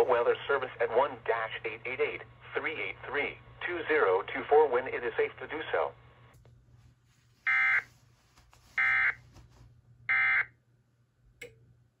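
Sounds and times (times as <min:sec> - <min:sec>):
click: 0:11.4 - 0:11.6.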